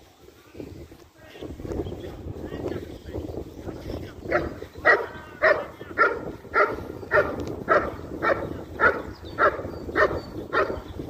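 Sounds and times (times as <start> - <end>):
dog barking: 4.3 - 10.8.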